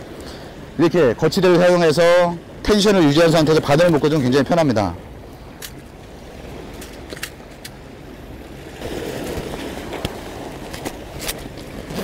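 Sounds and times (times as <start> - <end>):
waves on rocky shore: 0.0 - 12.0
wind: 0.0 - 12.0.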